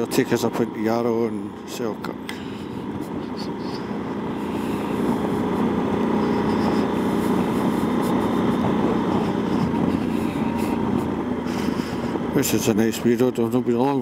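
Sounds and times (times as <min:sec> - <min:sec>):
motorcycle engine running: 0:00.0 - 0:14.0
wind rush: 0:02.6 - 0:12.4.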